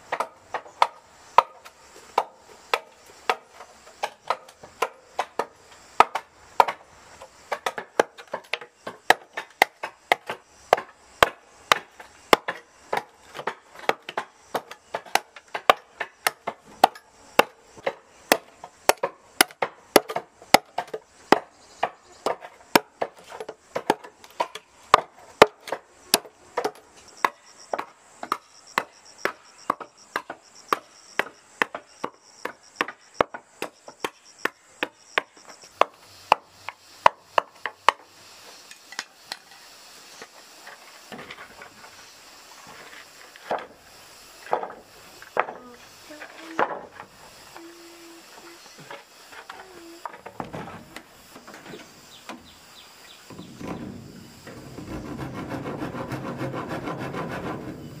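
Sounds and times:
machete chopping bamboo: 0:00.0 - 0:06.9, 0:07.5 - 0:38.0.

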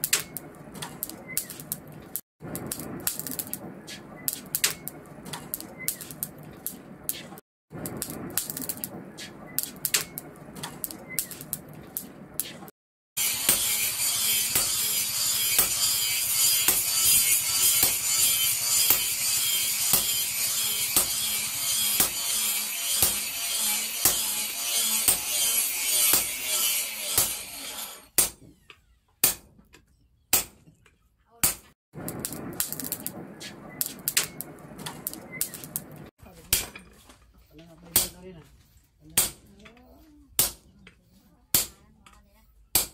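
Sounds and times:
sledgehammer striking metal: 0:13.2 - 0:27.6.

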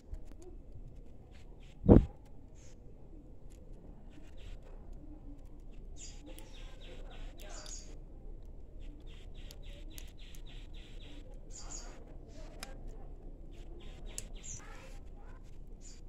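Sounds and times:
low background noise: 0:00.0 - 0:16.0
small bird chirping: 0:05.6 - 0:08.0, 0:08.8 - 0:12.5, 0:13.5 - 0:15.0, 0:15.7 - 0:16.0.

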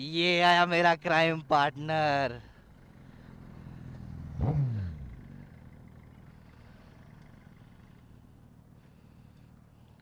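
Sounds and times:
motorcycle engine idling: 0:01.9 - 0:10.0
motorcycle passing by: 0:02.6 - 0:08.2.

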